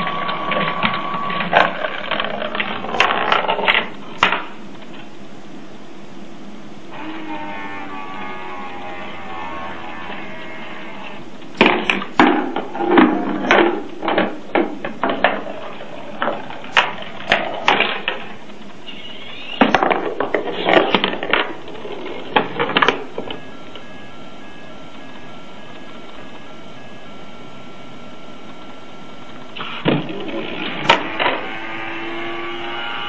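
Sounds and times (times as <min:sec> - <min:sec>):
machine mechanisms clacking: 0:00.0 - 0:05.2
steady background noise: 0:00.0 - 0:33.0.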